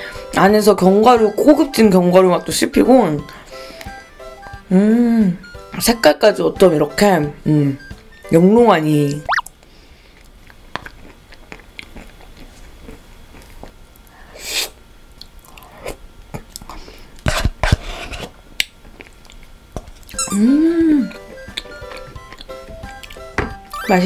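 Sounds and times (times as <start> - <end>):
person humming: 4.7 - 5.4, 20.2 - 21.2
wet chewing and smacking: 10.2 - 13.8, 18.6 - 20.2, 21.0 - 23.3.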